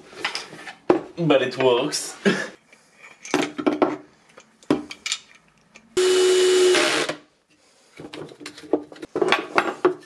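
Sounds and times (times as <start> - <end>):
cordless drill driving screw: 6.0 - 7.2.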